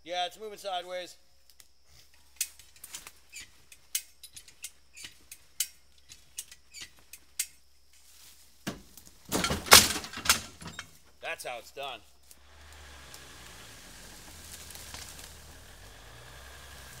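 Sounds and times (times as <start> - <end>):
loud clattering crunch: 8.6 - 10.9, 13.1 - 16.1.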